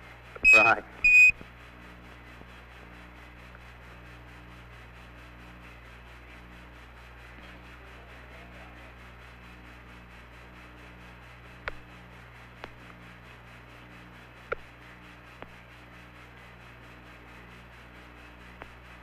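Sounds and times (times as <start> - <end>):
radio hiss and hum: 0.4 - 1.4.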